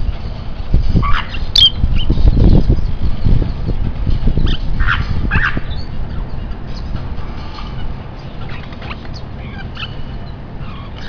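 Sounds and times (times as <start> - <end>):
lovebirds squawking: 1.0 - 2.1, 4.4 - 6.9, 7.5 - 11.0.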